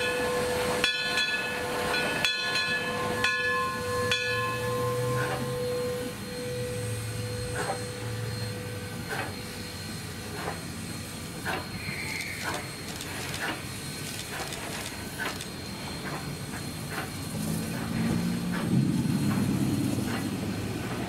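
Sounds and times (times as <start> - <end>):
steam whistle: 0.0 - 2.0, 2.7 - 10.5
steam hissing: 0.0 - 21.0
steam locomotive exhaust chuffs: 0.0 - 21.0
brief squeal: 5.2 - 13.5.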